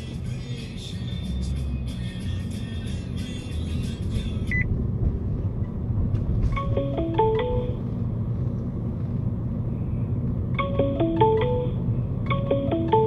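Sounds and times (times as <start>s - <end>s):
music: 0.0s - 4.6s, 6.6s - 7.7s, 10.6s - 13.0s
car road and engine rumble: 0.0s - 13.0s
phone ringtone beeps: 6.6s - 7.8s, 10.6s - 13.0s.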